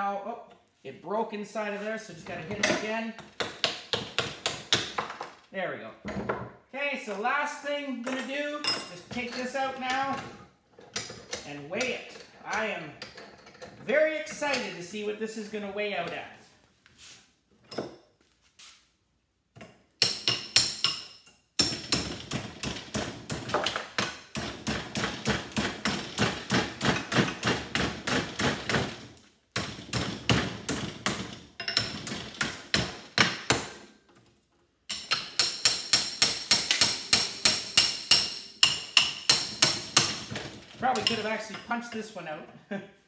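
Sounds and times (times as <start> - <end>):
hammer striking metal: 34.9 - 40.2.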